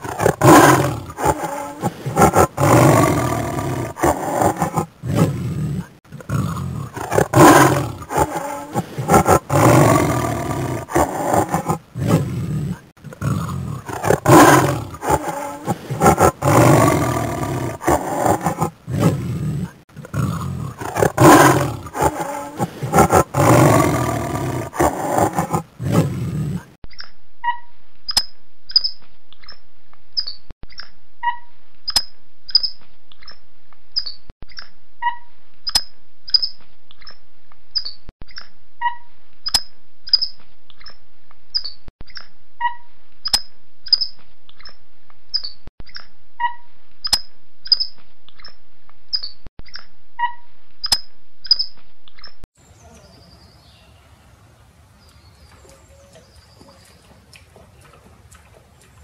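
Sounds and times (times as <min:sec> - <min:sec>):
tiger growling and roaring: 0:00.0 - 0:26.8.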